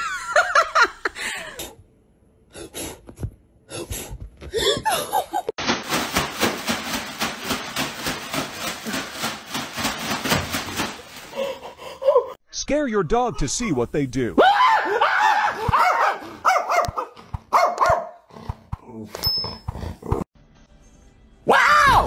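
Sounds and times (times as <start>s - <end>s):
person laughing hard: 0.0s - 1.6s, 4.6s - 5.5s, 11.3s - 12.4s.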